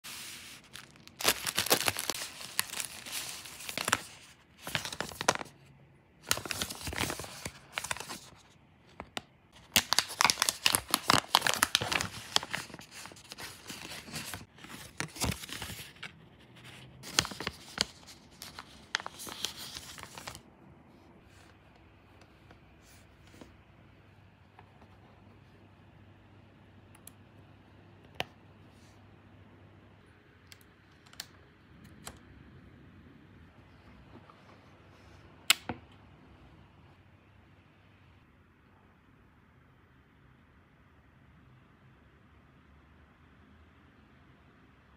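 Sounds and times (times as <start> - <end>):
plastic packaging tearing and crinkling: 0.6 - 5.5, 9.6 - 16.1.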